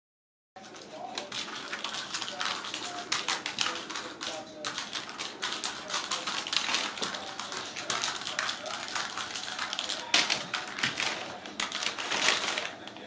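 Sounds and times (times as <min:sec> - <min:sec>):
packing paper crinkling: 0:00.6 - 0:13.0.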